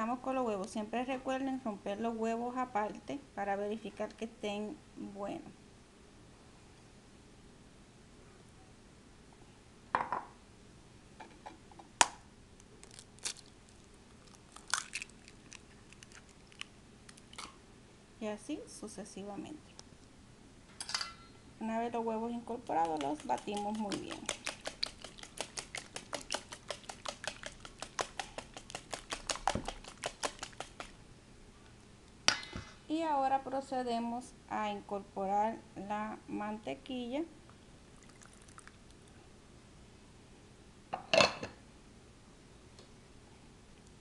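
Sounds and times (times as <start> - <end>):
eggshells cracking on bowl: 12.6 - 17.6, 22.6 - 31.0.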